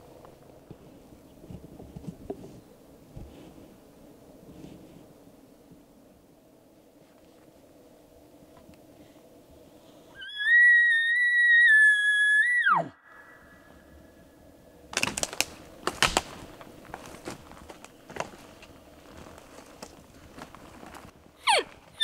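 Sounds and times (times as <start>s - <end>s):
sticks snapping: 14.9s - 16.7s.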